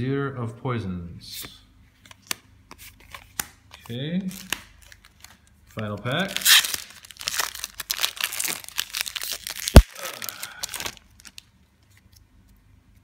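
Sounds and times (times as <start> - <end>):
foil wrapper tearing and crinkling: 6.2 - 11.5.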